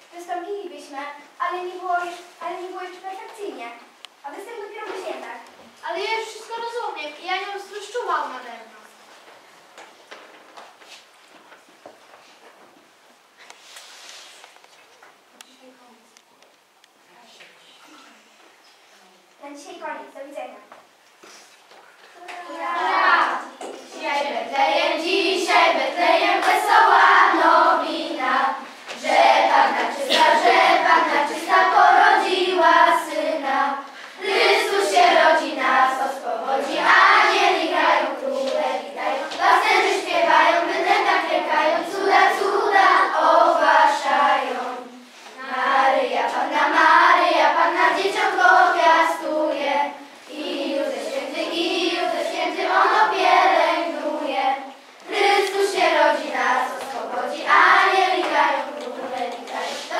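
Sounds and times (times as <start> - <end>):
children's choir singing a carol: 22.4 - 59.9.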